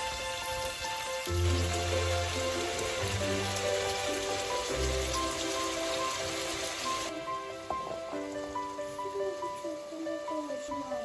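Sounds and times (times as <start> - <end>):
meat sizzling in oil: 0.0 - 11.0
soft melodic background music: 0.0 - 11.0.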